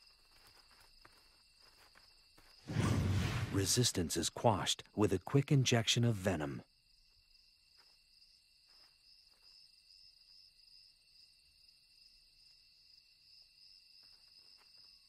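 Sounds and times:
crickets trilling: 0:00.0 - 0:02.6.

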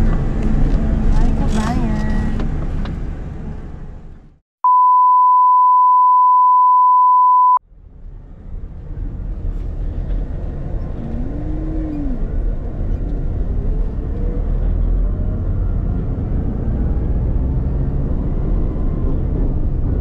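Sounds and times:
vehicle rumble: 0:00.0 - 0:04.4, 0:07.6 - 0:20.0
steady electronic beep: 0:04.6 - 0:07.6.

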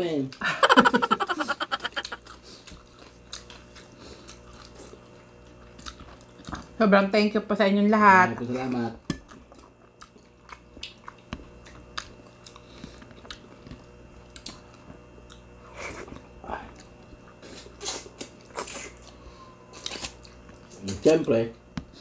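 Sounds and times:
chewing and mouth smacks: 0:02.0 - 0:06.8, 0:09.2 - 0:21.0.

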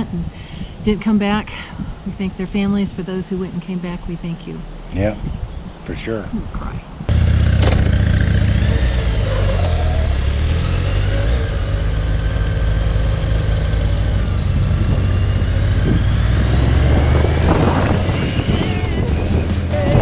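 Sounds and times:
wind rush on microphone: 0:00.0 - 0:03.7, 0:04.9 - 0:07.2, 0:14.1 - 0:20.0
motorcycle engine riding: 0:07.0 - 0:20.0.

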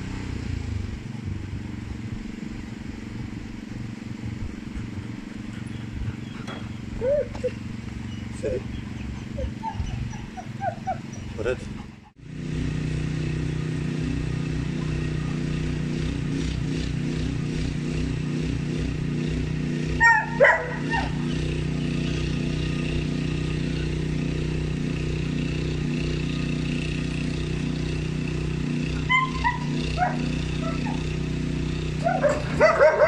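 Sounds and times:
steady low hum: 0:00.0 - 0:33.0
dog yipping: 0:05.7 - 0:12.0, 0:20.0 - 0:21.4, 0:29.0 - 0:31.0, 0:32.0 - 0:33.0.

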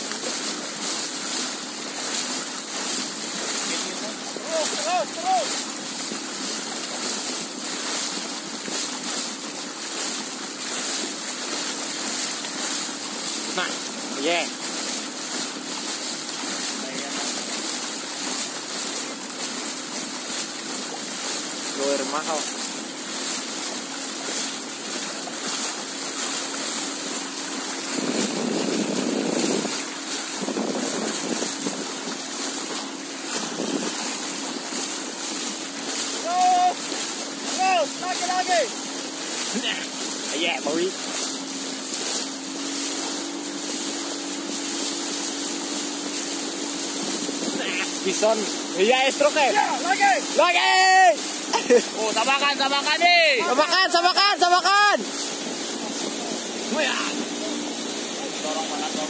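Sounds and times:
faint motorboat engine hum: 0:00.0 - 0:59.0
water rushing along boat: 0:00.0 - 0:59.0
wind buffeting microphone: 0:26.5 - 0:36.2, 0:45.6 - 0:50.4.

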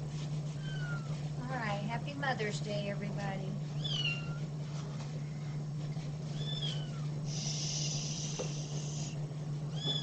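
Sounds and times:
low steady hum: 0:00.0 - 0:10.0
kitten meowing: 0:03.8 - 0:04.4, 0:06.3 - 0:07.0, 0:09.7 - 0:10.0
steady hiss: 0:07.3 - 0:09.2.

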